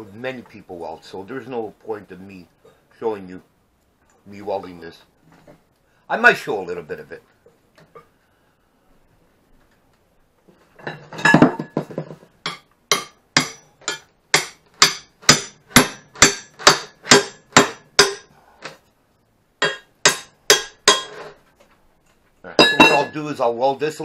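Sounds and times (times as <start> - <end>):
hammer striking steel tubing: 12.4 - 18.3, 19.6 - 21.3, 22.6 - 23.2.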